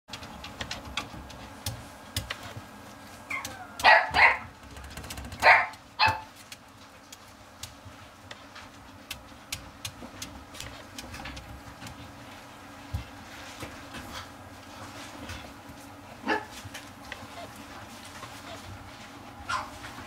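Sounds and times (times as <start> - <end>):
puppies yapping and barking: 3.2 - 4.6, 5.4 - 6.4, 16.2 - 20.0.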